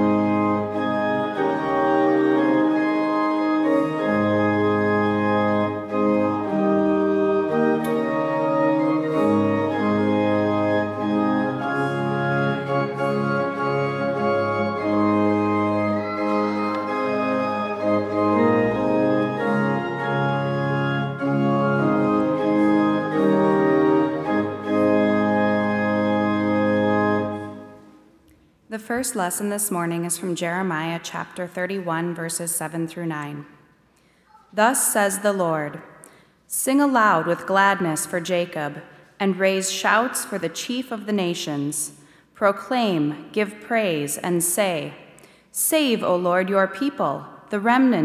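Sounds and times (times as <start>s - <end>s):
church organ chords: 0.0s - 28.2s.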